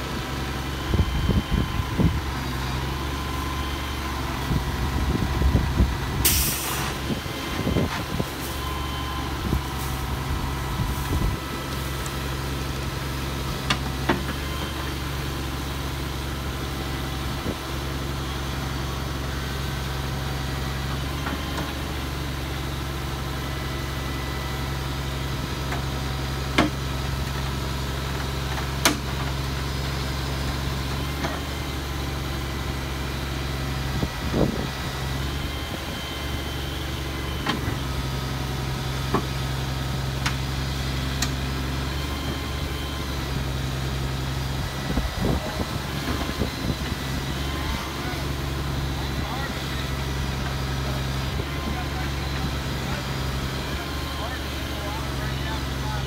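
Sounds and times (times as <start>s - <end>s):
heavy machine engine droning: 0.0s - 56.0s
short hiss: 6.3s - 7.0s.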